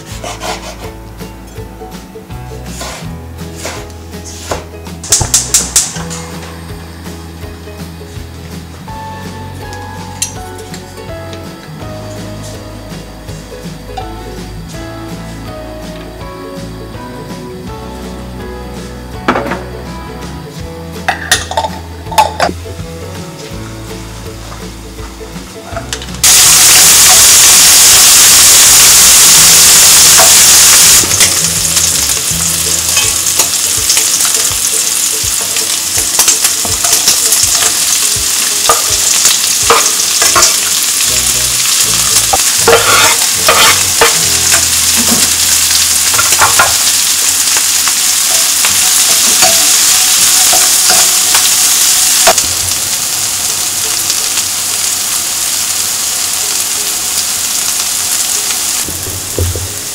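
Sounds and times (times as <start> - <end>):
spatula scraping wok: 0.0 - 1.0, 2.6 - 4.8, 25.7 - 54.2
food sizzling in wok: 0.0 - 59.9.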